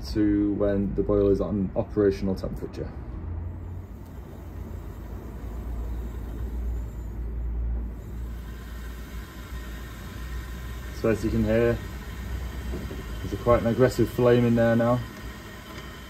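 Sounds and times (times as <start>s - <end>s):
gas flame rumbling rush: 3.4s - 16.0s.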